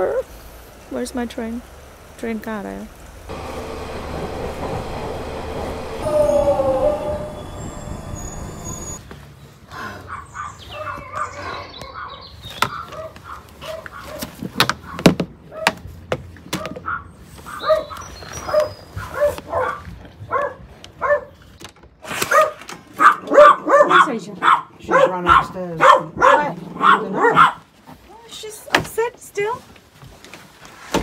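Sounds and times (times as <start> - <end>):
underground train running: 0.3 - 9.0
dog yipping and barking: 16.6 - 21.4, 22.2 - 27.6.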